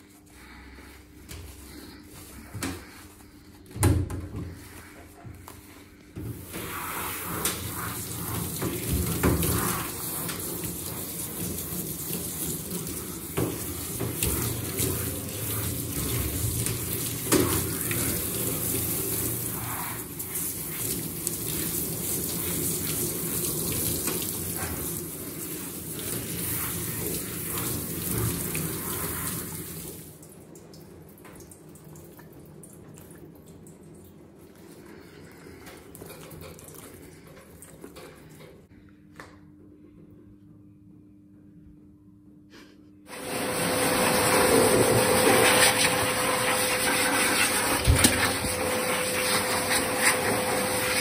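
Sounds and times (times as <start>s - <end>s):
shower sprayer running water: 5.6s - 30.2s, 43.1s - 51.0s.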